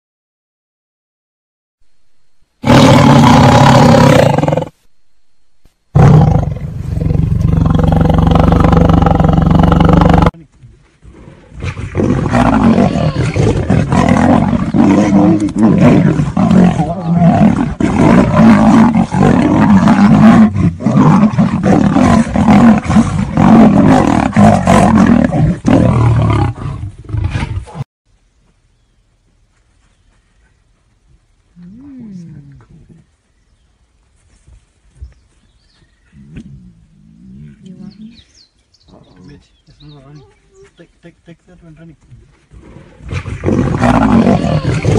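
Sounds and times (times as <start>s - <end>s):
big cats roaring: 2.6s - 4.7s, 6.0s - 10.3s, 11.1s - 27.8s, 42.6s - 44.9s
big cats snarling and growling: 2.6s - 4.8s, 6.0s - 10.4s, 11.0s - 27.8s, 36.2s - 38.2s, 42.5s - 44.9s.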